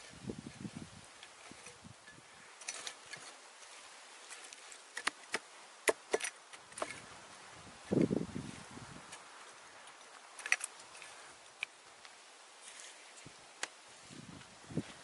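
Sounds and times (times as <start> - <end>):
hatchet chopping into earth: 5.0 - 6.9.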